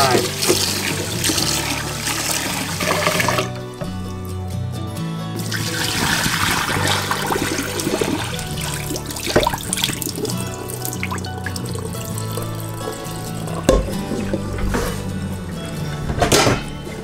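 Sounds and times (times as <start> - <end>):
water pouring into a sink: 0.0 - 3.9, 5.4 - 15.0
background music with bass: 0.0 - 17.0.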